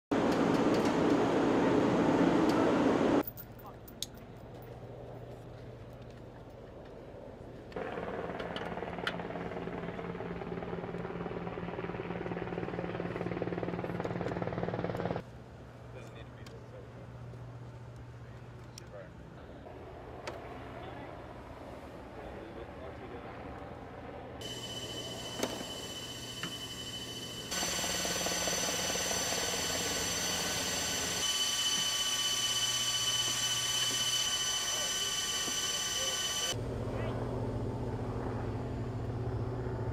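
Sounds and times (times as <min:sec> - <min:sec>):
machinery humming: 0:24.4 - 0:39.9.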